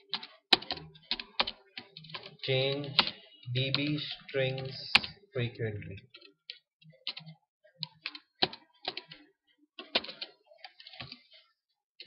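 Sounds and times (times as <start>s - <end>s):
typing on computer keyboard: 0.0s - 5.2s, 6.0s - 11.2s.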